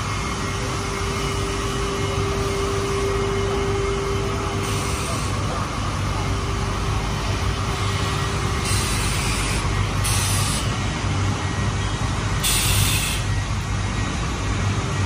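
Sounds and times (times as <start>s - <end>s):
machinery humming: 0.0s - 15.0s
compressed air hisses: 8.6s - 10.7s, 12.4s - 13.3s.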